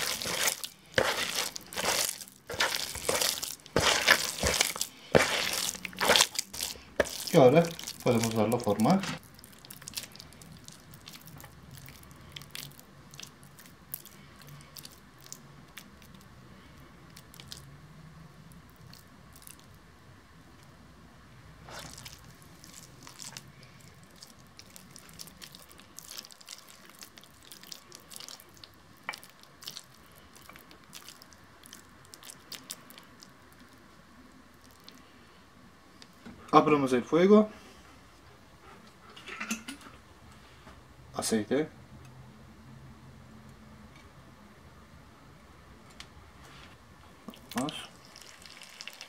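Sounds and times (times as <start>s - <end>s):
hands kneading wet mixture: 0.0s - 16.3s, 17.1s - 17.7s, 21.6s - 33.9s, 34.5s - 35.1s, 47.2s - 49.0s
faint steady hum: 0.0s - 49.0s.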